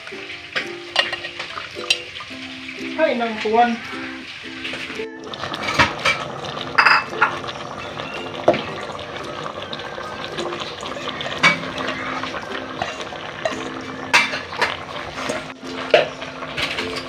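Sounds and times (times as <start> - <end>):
pot bubbling: 0.0 - 17.0
food pieces clattering into pot: 0.3 - 3.6, 4.2 - 17.0
metal bowl knocking on pot: 5.6 - 7.5, 11.3 - 12.0, 12.8 - 14.8.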